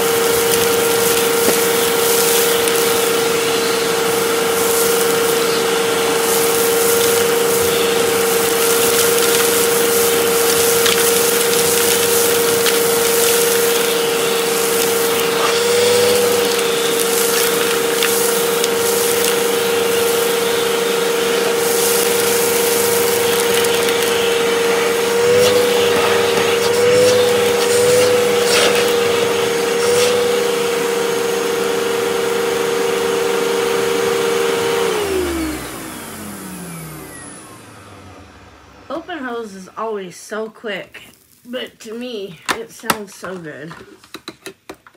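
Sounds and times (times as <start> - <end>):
grit crackling up a hose: 0.0 - 31.8
vacuum cleaner motor whining: 0.0 - 40.0.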